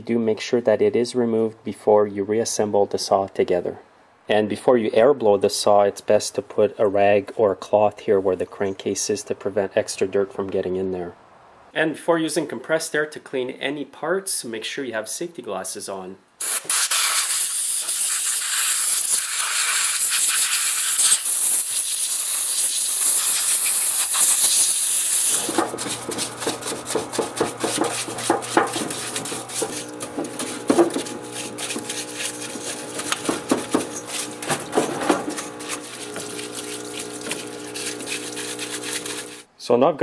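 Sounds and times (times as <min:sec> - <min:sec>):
compressed air hissing: 0:16.4 - 0:39.5
brush scrubbing: 0:19.2 - 0:39.5
parts washer humming: 0:23.0 - 0:39.5.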